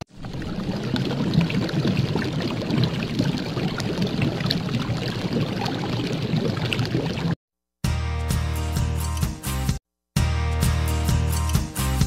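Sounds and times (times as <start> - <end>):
rushing watery noise: 0.1 - 7.4.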